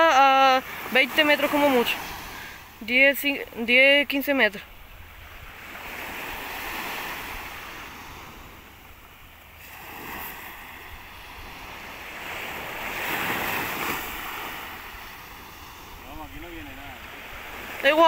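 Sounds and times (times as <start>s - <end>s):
waves washing up pebble beach: 0.0s - 3.0s, 9.5s - 18.0s.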